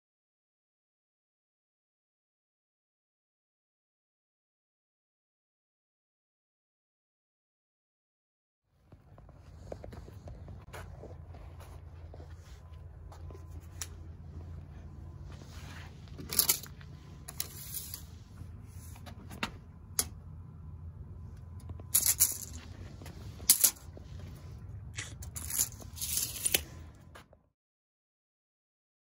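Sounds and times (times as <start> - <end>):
steady low rumble: 8.8 - 27.3
steel tape measure rattling: 16.1 - 18.2, 21.7 - 24.1, 25.0 - 26.8.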